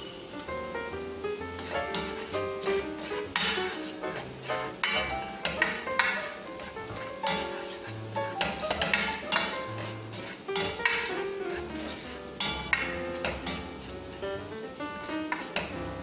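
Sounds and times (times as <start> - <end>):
spoon scraping in metal pot: 1.6 - 14.2.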